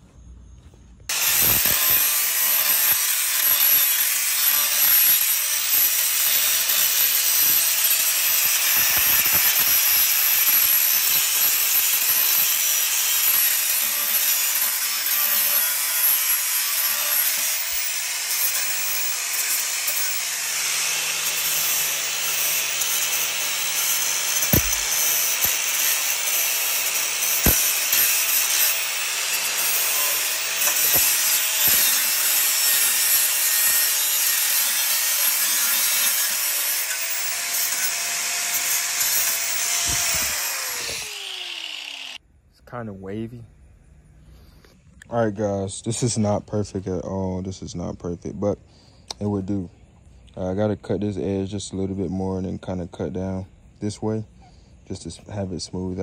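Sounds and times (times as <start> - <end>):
angle grinder grinding metal: 1.1 - 42.2.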